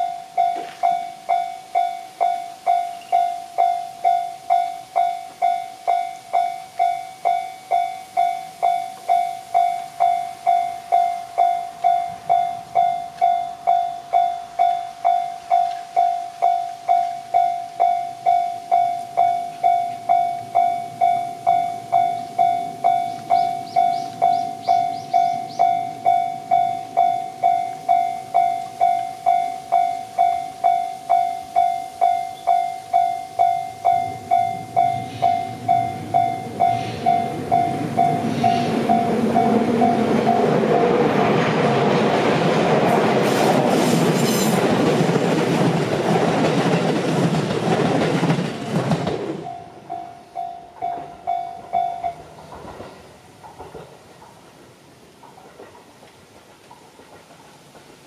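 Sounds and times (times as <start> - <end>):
level crossing bell dinging: 0.0 - 40.5
approaching train rumble: 0.0 - 58.0.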